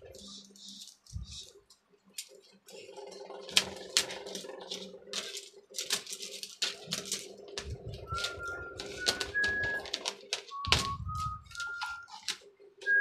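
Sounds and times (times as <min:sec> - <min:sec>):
steady hum: 0:00.0 - 0:13.0
light clicks and rattles of wire: 0:00.1 - 0:12.5.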